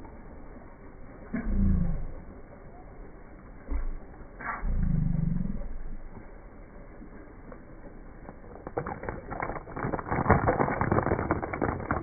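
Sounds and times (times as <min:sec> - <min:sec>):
plastic figures clicking on concrete: 0:08.3 - 0:12.0.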